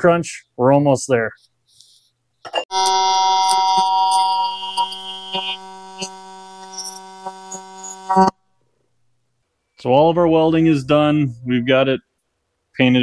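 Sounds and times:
arc welding buzz and crackle: 2.7s - 8.3s.

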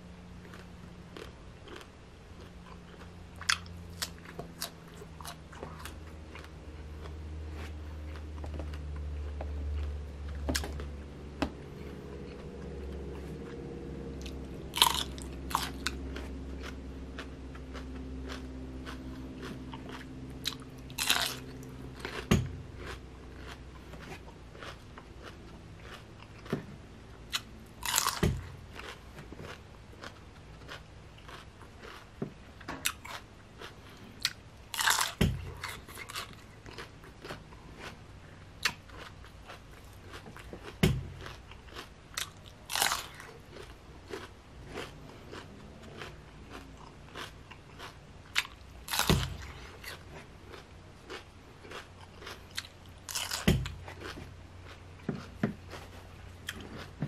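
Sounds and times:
wet chewing crunches: 0.4s - 57.0s
crunchy bites into pickle: 14.2s - 26.6s, 27.3s - 32.0s, 34.2s - 37.4s, 38.6s - 45.4s, 46.0s - 54.2s.

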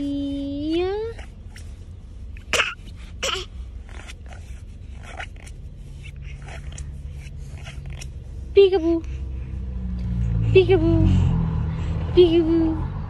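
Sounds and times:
low steady rumble: 0.0s - 13.0s
breathy cough-like vocal bursts: 2.4s - 3.7s.

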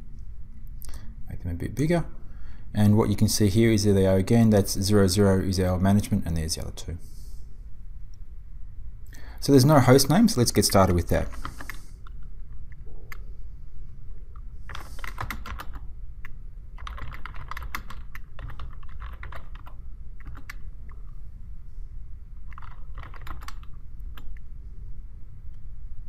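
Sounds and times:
steady low hum: 0.0s - 26.0s
computer keyboard key clicks: 14.7s - 15.9s, 16.8s - 20.6s, 22.5s - 24.4s.

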